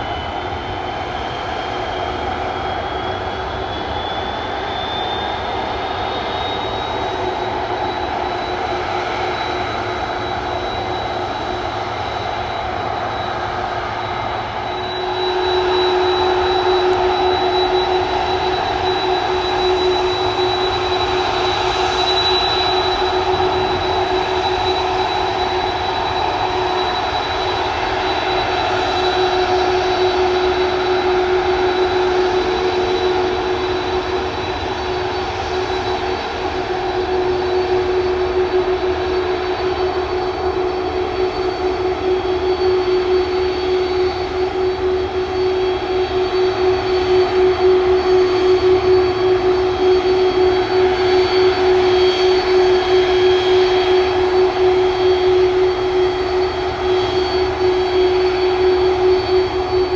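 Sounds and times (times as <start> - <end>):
jet engines idling: 0.0 - 59.9.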